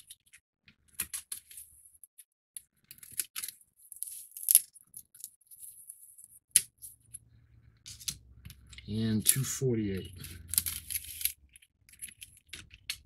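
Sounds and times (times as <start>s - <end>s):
puzzle pieces clicking: 7.9s - 13.0s.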